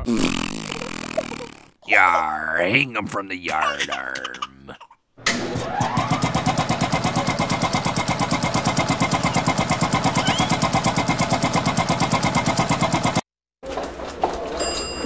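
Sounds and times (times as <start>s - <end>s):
motor whining and pulsing: 5.8s - 13.2s.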